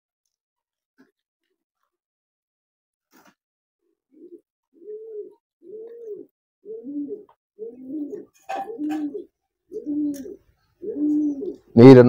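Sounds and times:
pigeon cooing: 3.8s - 11.9s.

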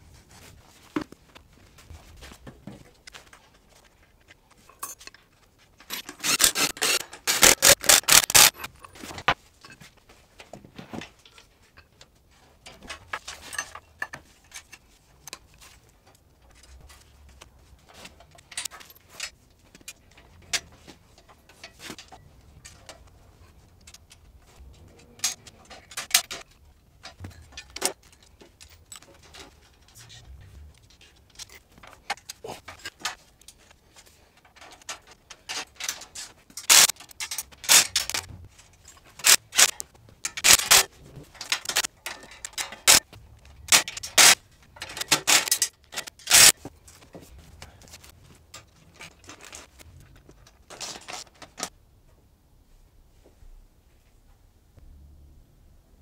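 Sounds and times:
metallic clinks and clicks: 4.5s - 9.0s, 23.7s - 47.0s
wrench clicking on nut: 6.0s - 8.7s.

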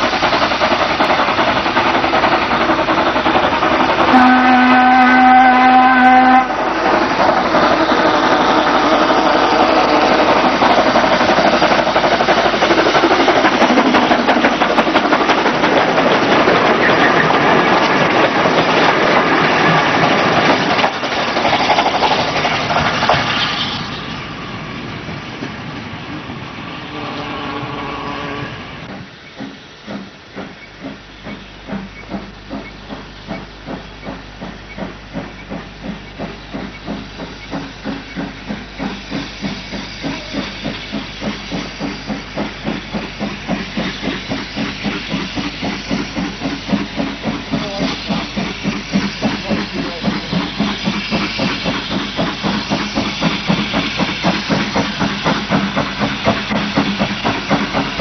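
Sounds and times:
steam hissing: 0.0s - 25.4s, 26.2s - 58.0s
steam locomotive exhaust chuffs: 0.0s - 58.0s.

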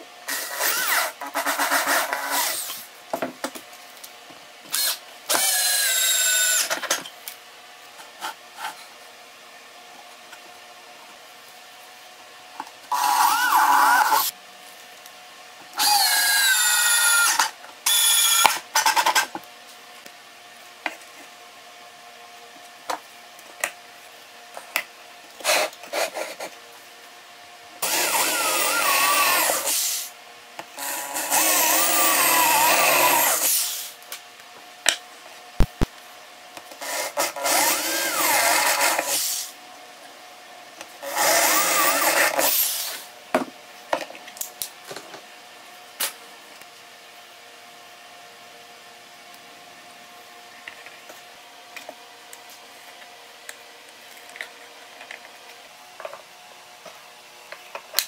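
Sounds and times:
power tool cutting plywood: 0.3s - 2.8s, 4.8s - 6.9s, 12.9s - 14.3s, 15.8s - 18.9s, 27.8s - 30.1s, 30.8s - 34.0s, 36.8s - 39.5s, 41.0s - 43.0s.

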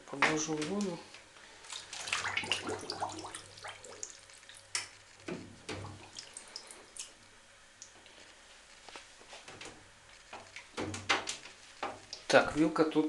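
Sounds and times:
bathwater sloshing and splashing: 0.3s - 7.3s.

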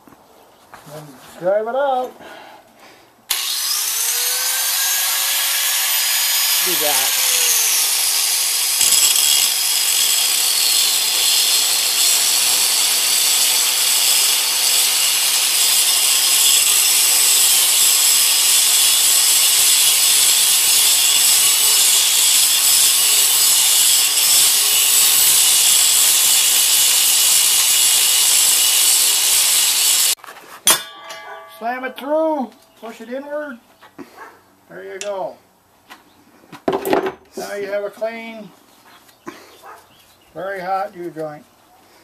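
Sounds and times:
angle grinder cutting steel: 3.3s - 33.2s.

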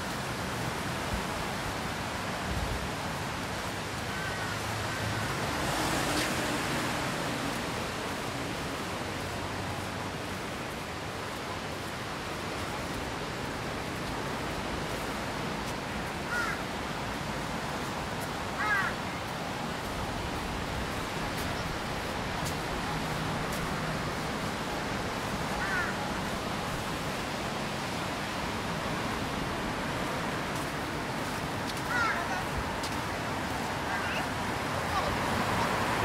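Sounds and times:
steady rushing noise: 0.0s - 36.0s.

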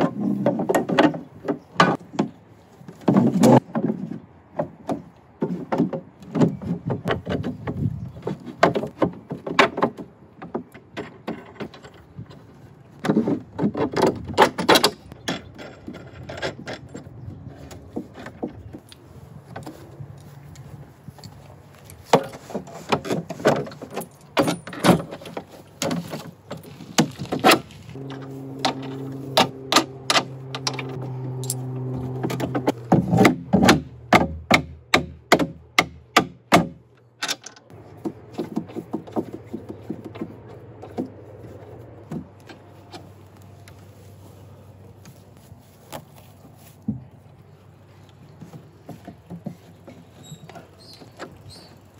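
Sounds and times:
wooden beams and bolts knocking: 0.0s - 18.9s, 22.0s - 41.2s.

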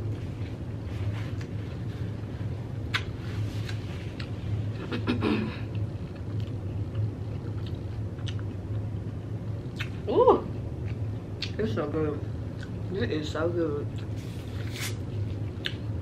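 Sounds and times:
low background hum: 0.0s - 16.0s
crunchy chewing: 5.7s - 9.9s.

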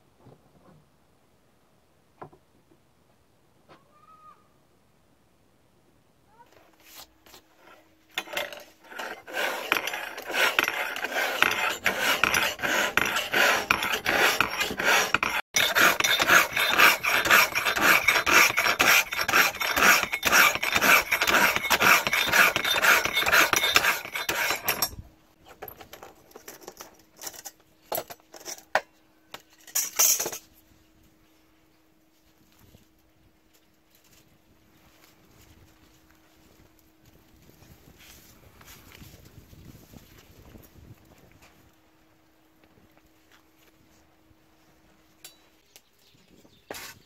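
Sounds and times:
light knocks and scrapes: 6.6s - 27.4s
hand file rasping on steel blade: 7.6s - 25.0s.

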